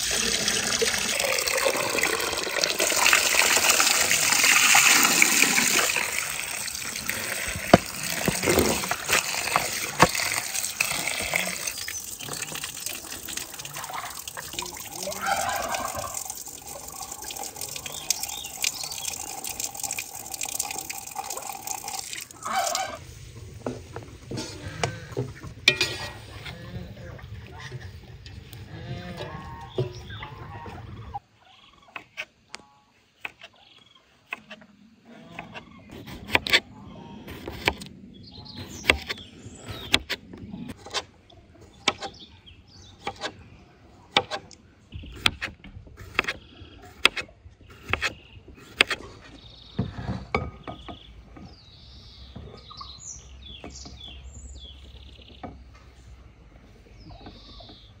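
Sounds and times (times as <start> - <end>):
birds chirping: 0.0 - 45.4, 46.0 - 58.0.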